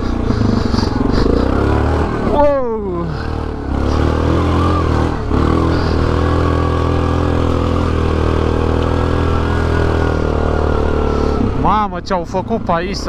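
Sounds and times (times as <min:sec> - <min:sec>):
atv engine running: 0:00.0 - 0:13.0.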